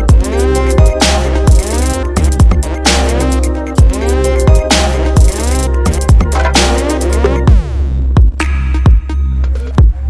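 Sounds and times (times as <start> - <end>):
dubstep music with heavy bass: 0.0 - 10.0
hard kick drum: 3.8 - 9.1.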